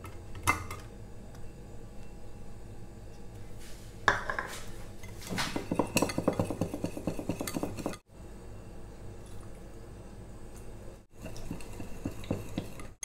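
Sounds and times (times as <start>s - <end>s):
whisk clinking in glass bowl: 5.6s - 8.0s.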